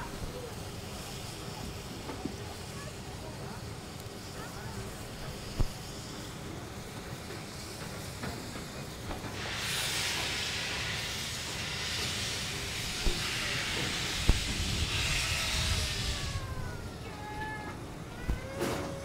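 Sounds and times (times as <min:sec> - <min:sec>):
loud steam hiss: 0:00.0 - 0:19.0.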